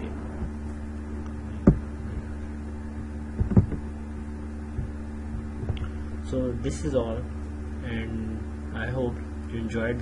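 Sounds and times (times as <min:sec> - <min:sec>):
dull thumps: 0:00.0 - 0:06.0
low electrical hum: 0:00.0 - 0:10.0.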